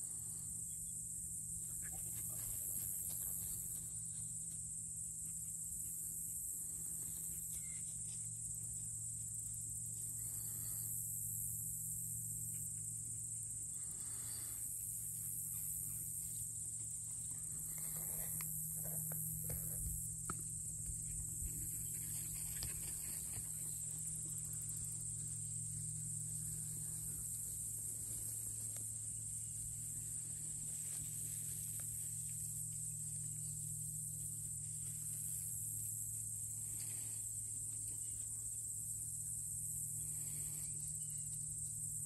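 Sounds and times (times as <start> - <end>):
high insect chorus: 0.0 - 42.0
steady low hum: 0.0 - 42.0
faint rustles and ticks: 15.1 - 29.1.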